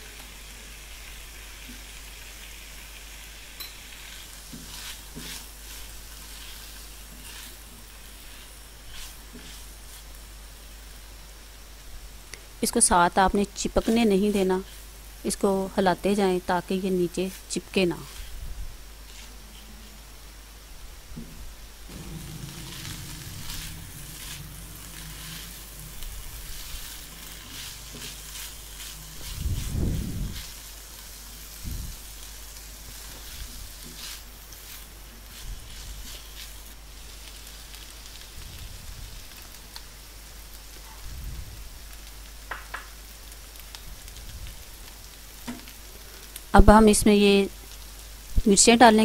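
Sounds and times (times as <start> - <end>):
food sizzling in a wok: 0.0 - 49.0
wooden spatula scraping: 4.0 - 10.2, 17.3 - 18.4, 19.0 - 19.8, 21.2 - 30.8, 32.9 - 36.8.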